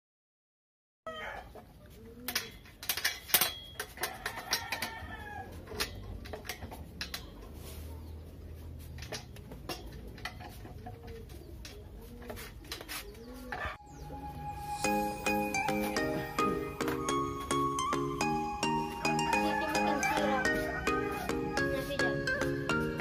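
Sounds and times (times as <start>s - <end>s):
chickens clucking: 3.9s - 17.6s, 18.7s - 23.0s.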